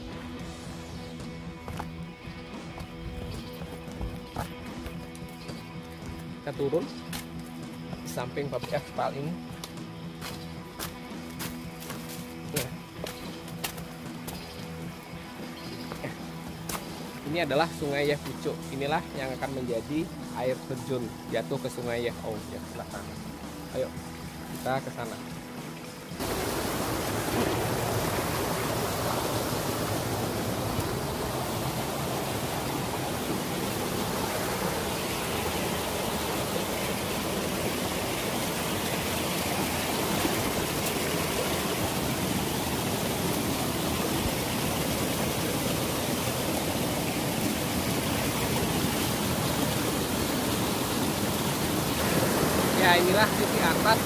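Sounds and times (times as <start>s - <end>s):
stream water rushing: 0.0s - 54.0s.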